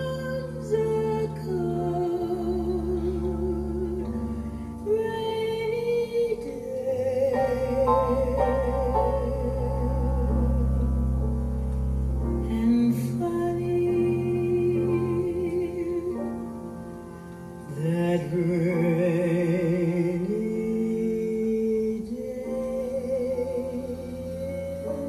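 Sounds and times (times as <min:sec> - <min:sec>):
woman singing with vibrato: 0:00.0 - 0:11.1, 0:12.4 - 0:16.6, 0:17.7 - 0:25.0
piano accompaniment: 0:00.0 - 0:25.0.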